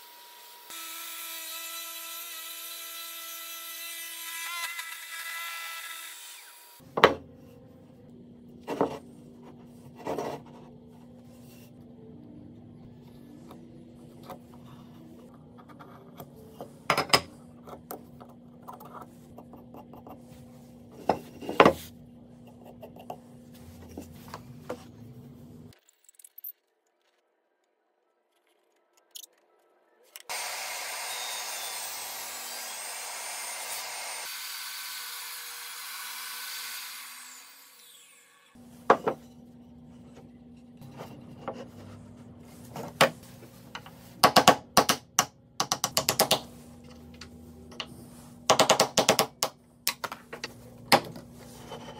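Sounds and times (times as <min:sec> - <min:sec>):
table saw cutting wood: 0:00.0 - 0:06.8, 0:30.3 - 0:38.6.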